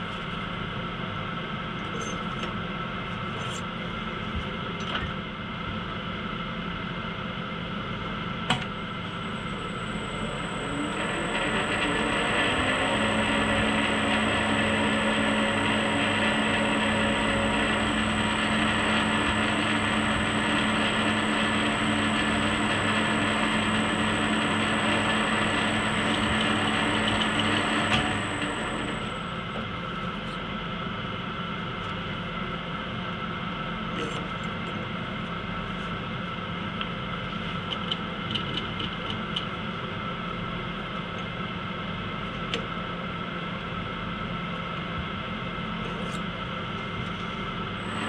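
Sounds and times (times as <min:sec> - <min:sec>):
lathe motor whine: 0:07.7 - 0:33.6, 0:45.1 - 0:48.0.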